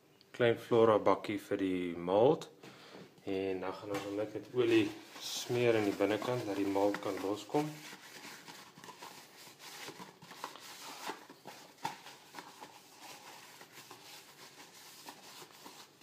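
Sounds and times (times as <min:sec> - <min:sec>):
paper towel rustling and wiping: 0:03.7 - 0:16.0.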